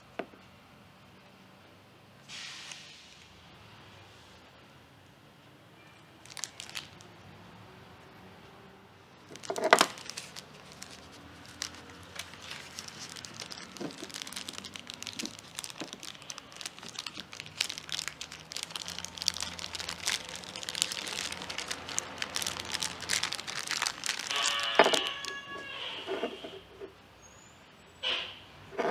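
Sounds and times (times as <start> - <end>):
plastic bags crinkling: 6.2 - 7.1, 9.2 - 26.2.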